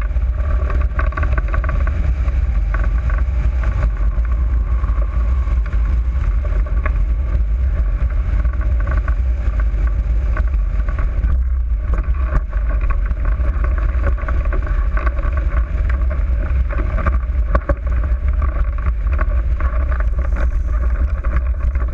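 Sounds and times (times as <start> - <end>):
wind noise on microphone: 0.0 - 21.9.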